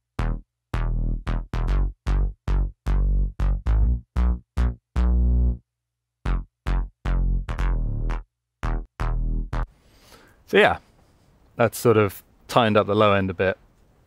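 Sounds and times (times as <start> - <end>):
gated synth bass line: 0.0 - 5.6, 6.2 - 9.7.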